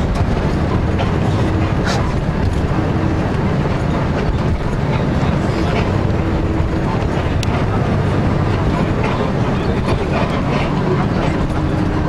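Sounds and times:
vehicle low rumble: 0:00.0 - 0:12.0.

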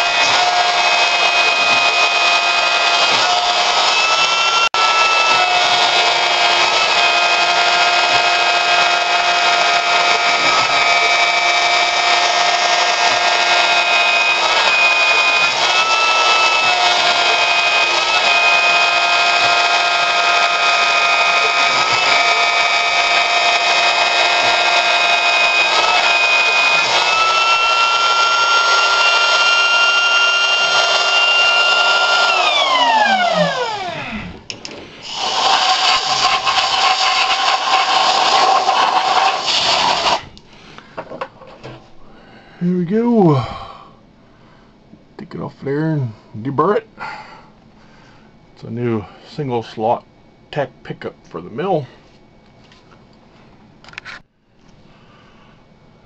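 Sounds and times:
milling machine spindle whine: 0:00.0 - 0:40.3.

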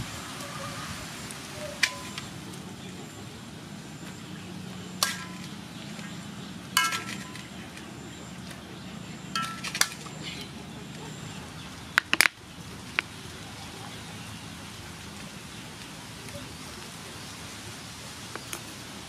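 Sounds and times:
metal utensil clanging on wok: 0:01.8 - 0:02.3, 0:05.0 - 0:05.6, 0:06.8 - 0:07.6, 0:09.3 - 0:10.1.

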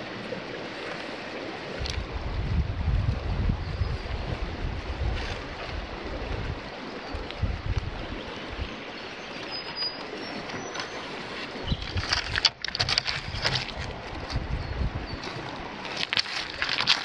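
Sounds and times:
flowing river water: 0:00.0 - 0:17.0
wind buffeting microphone: 0:01.8 - 0:09.0, 0:11.5 - 0:17.0.

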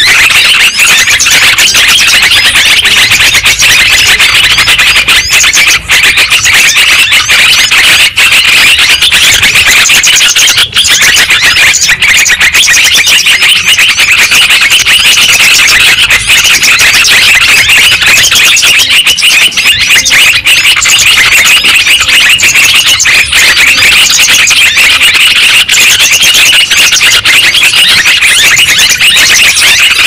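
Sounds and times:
chorus of birds chattering: 0:00.0 - 0:30.0.

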